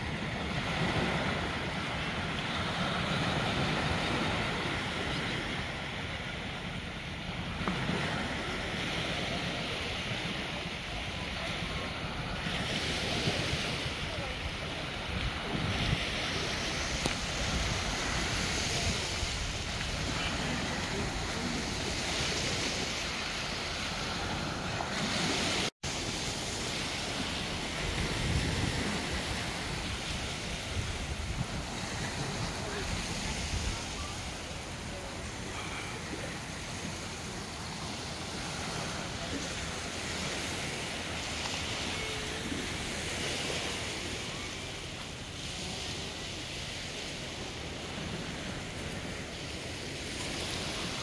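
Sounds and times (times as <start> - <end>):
waves washing onto sand: 0.0 - 51.0
wind buffeting microphone: 27.1 - 34.8.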